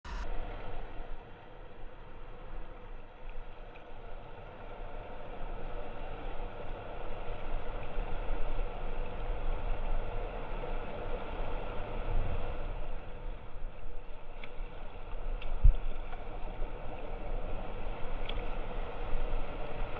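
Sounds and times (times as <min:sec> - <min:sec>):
low rumble: 0:00.0 - 0:07.6.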